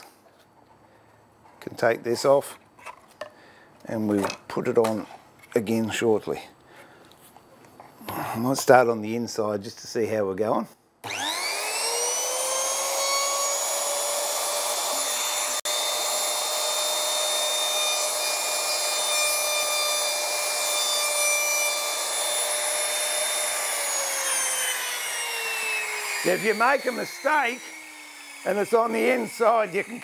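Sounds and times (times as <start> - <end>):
trimmer router whining: 11.0 - 30.0.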